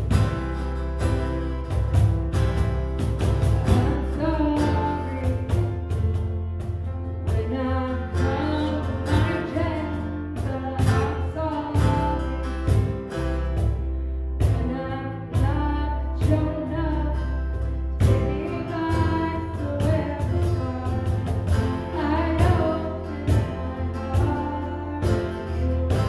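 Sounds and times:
bass: 0.0 - 26.0
cajon hits: 0.0 - 26.0
piano: 0.0 - 26.0
strummed acoustic guitar: 0.0 - 26.0
woman singing: 3.6 - 6.1, 7.2 - 12.8, 14.4 - 26.0.

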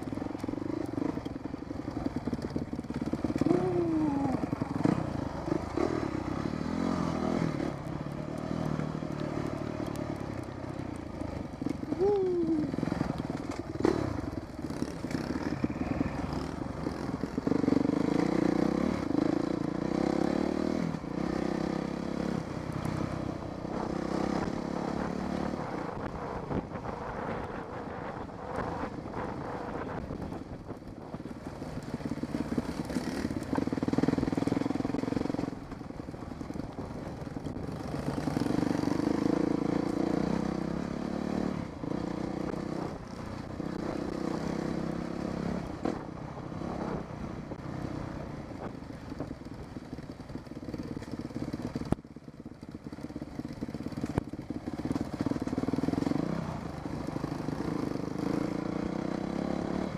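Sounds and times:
dirt bike engine revving: 2.1 - 7.8.

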